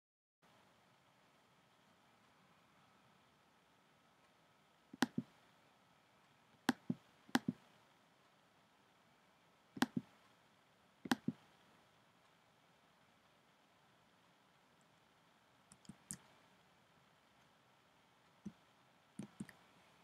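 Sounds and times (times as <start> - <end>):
computer mouse button clicking: 5.0 - 5.3, 6.7 - 7.6, 9.8 - 10.1, 11.1 - 11.4, 19.2 - 19.6.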